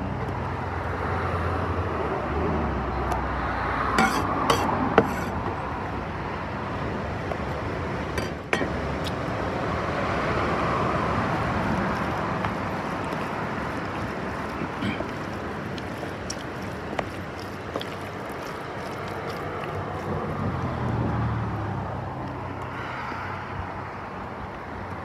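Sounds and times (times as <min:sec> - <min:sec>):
cleaver scraping and tapping: 0:04.0 - 0:05.4, 0:11.9 - 0:20.1
stirring food in a tub: 0:07.3 - 0:21.9.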